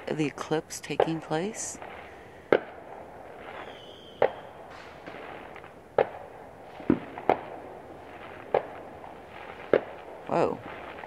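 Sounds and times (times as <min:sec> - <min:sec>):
fireworks bangs: 0:00.0 - 0:11.0.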